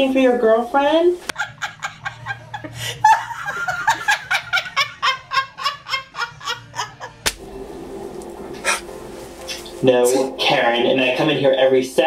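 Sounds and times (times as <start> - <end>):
woman laughing hard: 1.3 - 7.2.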